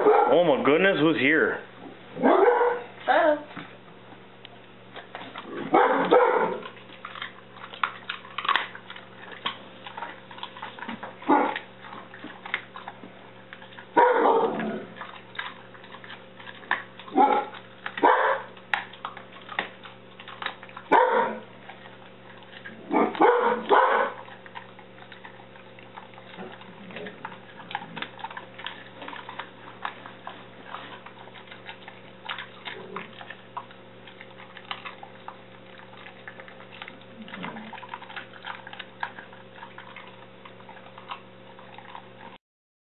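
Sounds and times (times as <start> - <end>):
dog barking: 0.0 - 0.4, 2.2 - 2.9, 5.7 - 6.7, 11.3 - 11.6, 14.0 - 14.6, 17.1 - 18.5, 20.9 - 21.4, 22.9 - 24.4
dog chewing a bone: 0.0 - 42.4.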